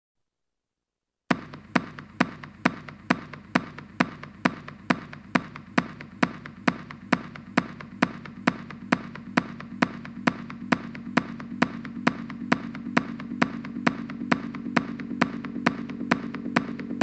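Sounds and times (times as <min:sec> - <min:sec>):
techno track: 0:01.3 - 0:17.0.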